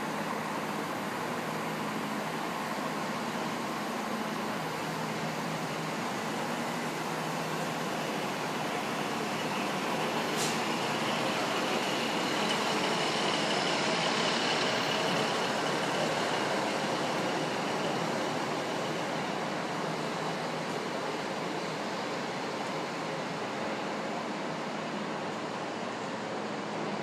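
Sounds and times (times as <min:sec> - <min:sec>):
diesel engine idling: 0:04.4 - 0:20.0.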